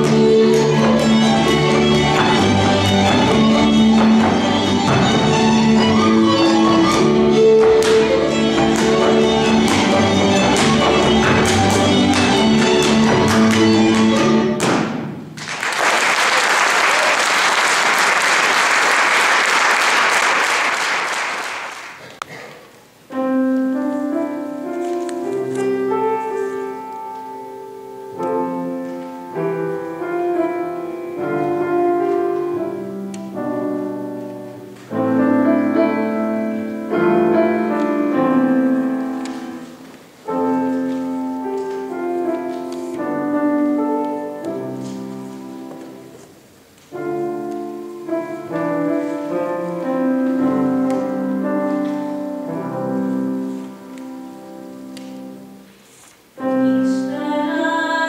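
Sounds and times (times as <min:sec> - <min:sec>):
piano playing: 0:00.0 - 0:15.4, 0:22.9 - 0:58.0
audience applauding: 0:15.4 - 0:22.2.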